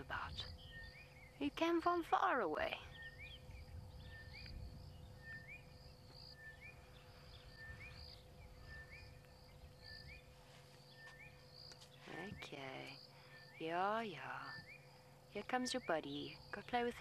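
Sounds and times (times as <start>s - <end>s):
faint steady hum: 0.0s - 17.0s
bird whistling call: 4.0s - 5.7s, 6.3s - 10.2s.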